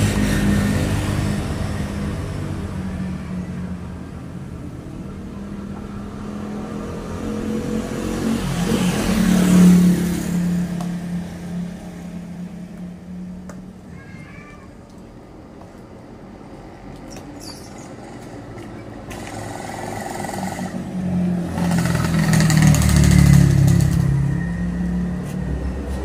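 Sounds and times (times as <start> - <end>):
vehicle engine passing: 4.8 - 13.2, 18.0 - 26.0.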